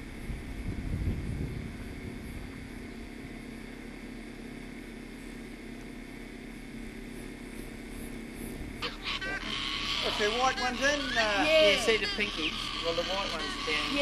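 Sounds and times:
wind rumbling on microphone: 0:00.0 - 0:03.7, 0:07.7 - 0:08.8.

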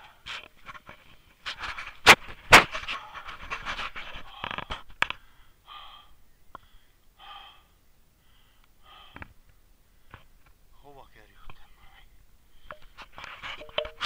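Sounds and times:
person breathing hard: 0:04.1 - 0:10.3.

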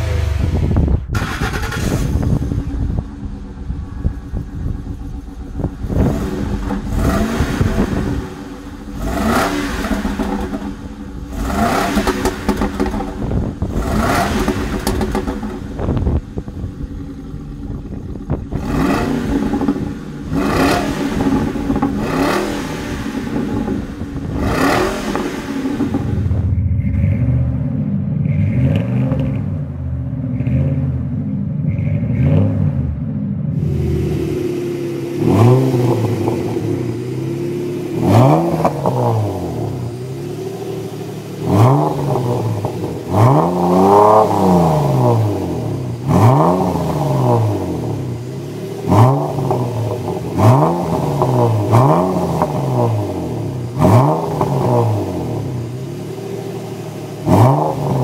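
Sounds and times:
truck engine idling: 0:00.0 - 0:28.6
car engine revving: 0:00.0 - 0:58.0.

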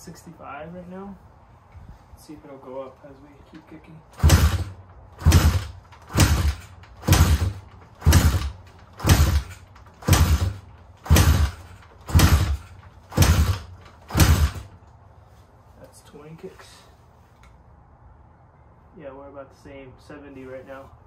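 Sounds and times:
kick-starter clunks with engine cranking: 0:04.1 - 0:14.8.

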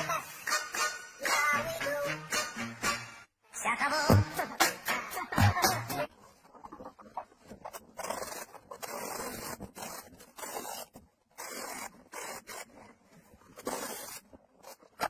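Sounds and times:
paint roller scraping wood: 0:06.2 - 0:15.0.

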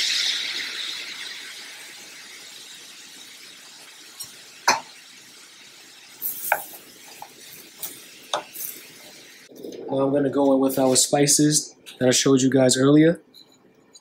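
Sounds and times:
apples sizzling in butter: 0:00.0 - 0:09.5.

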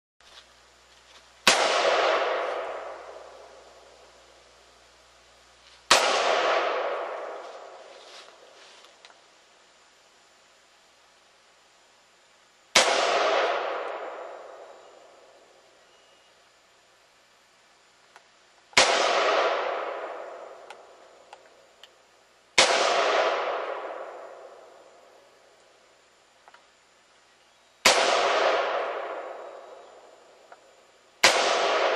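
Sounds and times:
rifle shots with echo: 0:01.4 - 0:04.0, 0:05.9 - 0:08.0, 0:12.8 - 0:15.4, 0:18.7 - 0:21.0, 0:22.6 - 0:24.8, 0:27.8 - 0:30.2, 0:31.2 - 0:31.9.

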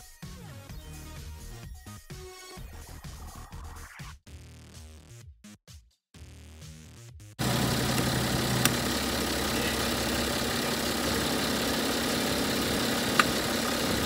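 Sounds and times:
diesel engine idling: 0:07.4 - 0:14.0
sharp clicks: 0:07.5 - 0:08.9, 0:13.0 - 0:13.5.

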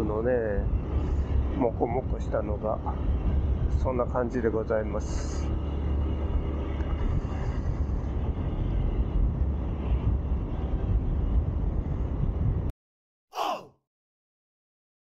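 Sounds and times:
wind noise on microphone: 0:00.0 - 0:04.1, 0:06.0 - 0:12.7.

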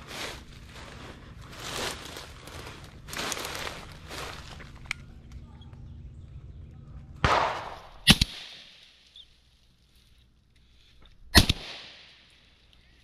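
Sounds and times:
shotgun shots: 0:07.2 - 0:08.8, 0:11.3 - 0:12.2.

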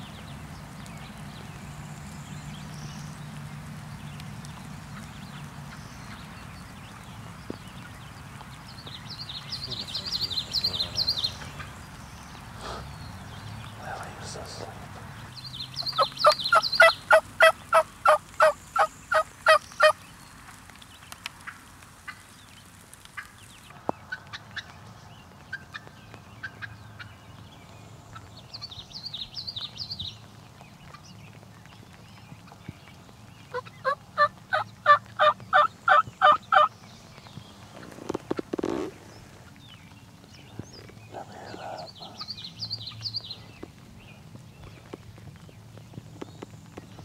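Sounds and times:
songbird warbling: 0:09.0 - 0:20.0
turkey yelping: 0:15.9 - 0:19.9.

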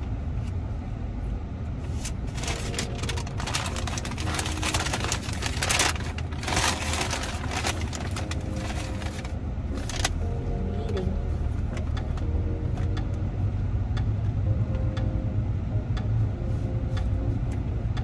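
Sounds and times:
low car cabin hum: 0:00.0 - 0:18.0
paper bag rustling and crinkling: 0:02.0 - 0:10.2.

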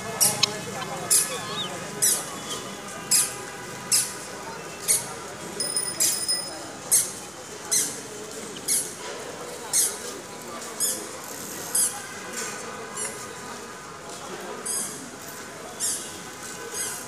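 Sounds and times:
guineafowl calling: 0:00.2 - 0:02.2.

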